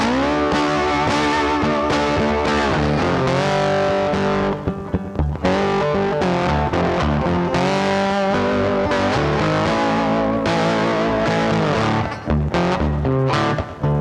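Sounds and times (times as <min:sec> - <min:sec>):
rock music with electric guitar: 0:00.0 - 0:14.0.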